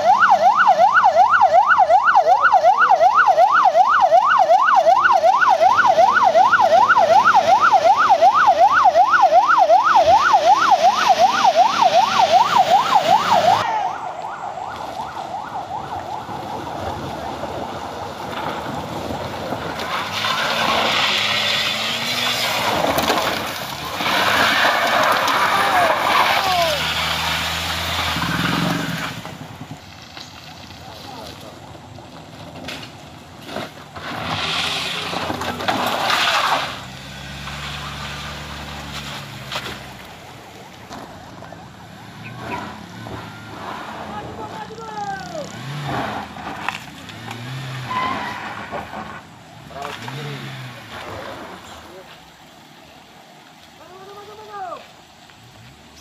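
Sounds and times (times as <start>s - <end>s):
siren yelping: 0.0s - 18.2s
passing vehicles: 0.0s - 56.0s.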